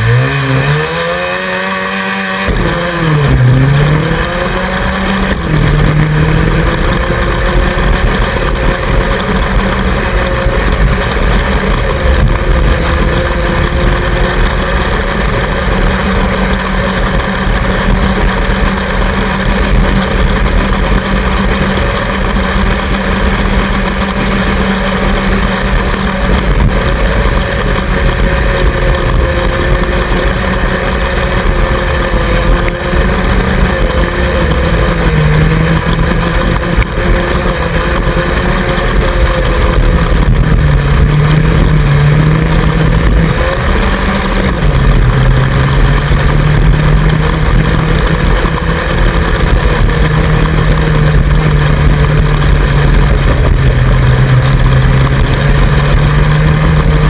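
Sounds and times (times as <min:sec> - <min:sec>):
lawnmower engine running hard: 0:00.0 - 0:57.0
low rumble: 0:02.4 - 0:57.0.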